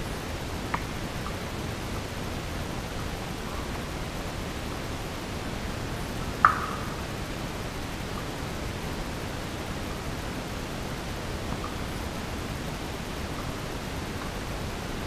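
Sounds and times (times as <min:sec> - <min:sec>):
steady hiss: 0:00.0 - 0:15.0
water drop plinking into pool: 0:06.4 - 0:07.0.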